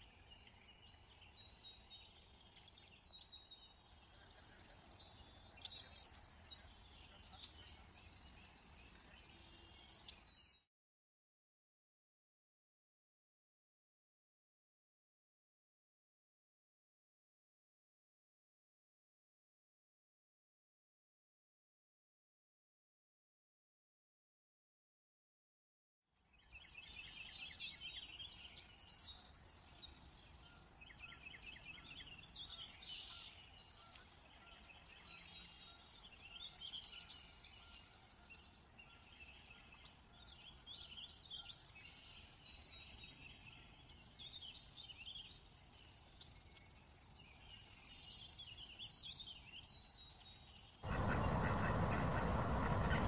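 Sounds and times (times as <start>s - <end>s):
faint outdoor ambience: 0.0s - 10.6s, 26.3s - 53.0s
songbirds chirping and trilling: 0.0s - 10.6s, 26.3s - 53.0s.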